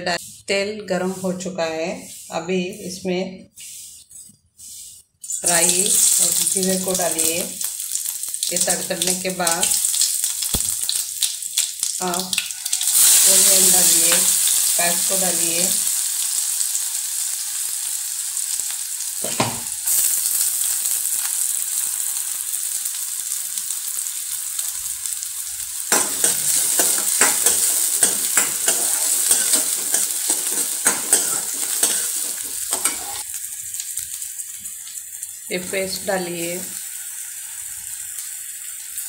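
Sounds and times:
onions sizzling in hot oil: 4.7s - 39.0s
spatula scraping and knocking pan: 19.2s - 19.7s, 25.9s - 33.2s.

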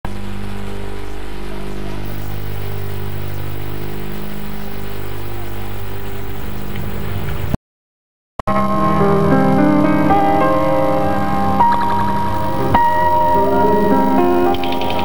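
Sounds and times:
buzzy electrical hum: 2.1s - 7.6s, 12.4s - 15.0s
tape hiss: 2.1s - 7.6s, 12.3s - 15.0s
piano music: 9.6s - 15.0s.

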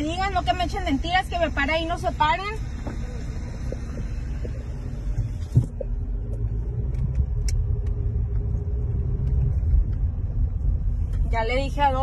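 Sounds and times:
car cabin road rumble: 0.0s - 12.0s
thump: 5.5s - 5.8s.

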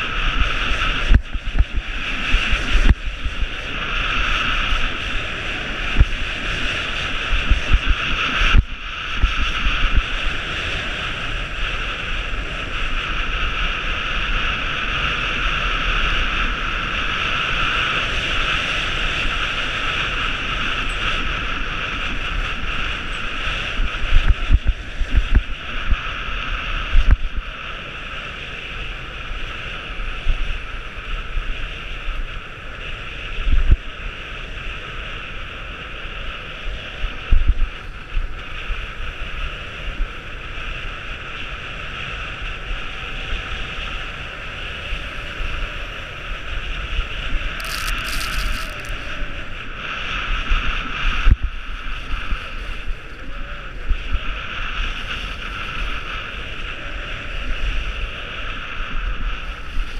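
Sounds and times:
wind gusts buffeting microphone: 0.0s - 59.9s
wind rushing over microphone: 0.0s - 59.9s
skis running over packed snow: 47.5s - 49.2s.

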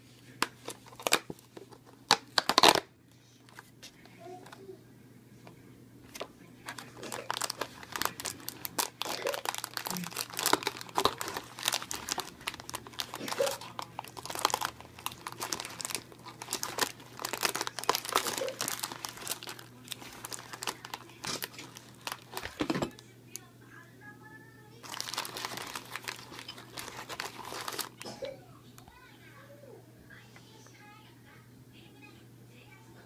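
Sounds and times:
biscuits rustling: 0.0s - 4.8s, 6.0s - 23.5s, 24.7s - 29.1s
plastic wrapper crinkling and tearing: 0.3s - 2.9s, 6.1s - 23.5s, 24.8s - 28.2s.

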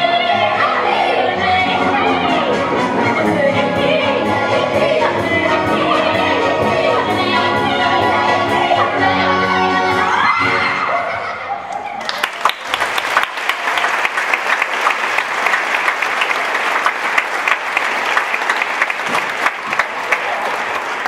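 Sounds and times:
audience applauding: 12.0s - 21.0s.

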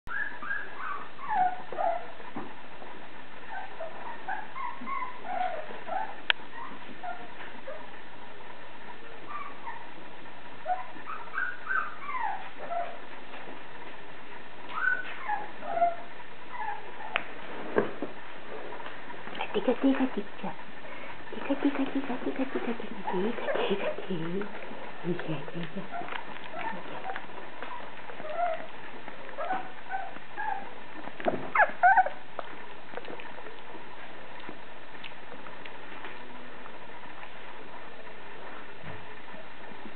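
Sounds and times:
puppy squeaking and whining: 0.1s - 2.2s, 3.4s - 7.9s, 9.2s - 10.0s, 10.6s - 13.0s, 14.6s - 17.2s, 21.7s - 24.5s, 25.2s - 30.8s, 31.4s - 32.3s.

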